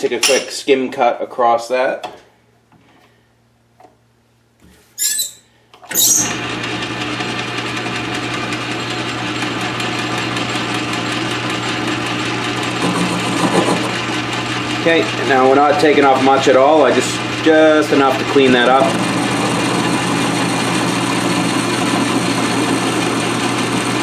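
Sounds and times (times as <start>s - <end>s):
lathe running with hum and whir: 6.2s - 24.0s.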